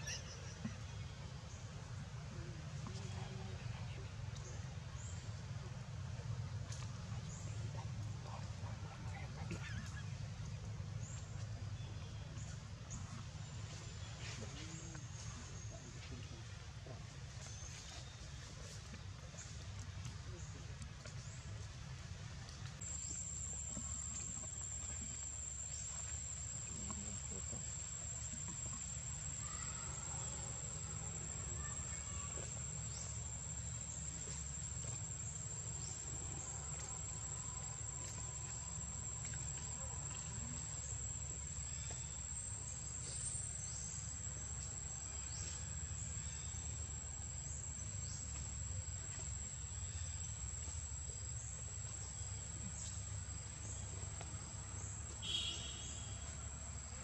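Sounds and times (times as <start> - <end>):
low steady rumble: 0.0 - 57.0
insects droning: 22.7 - 57.0.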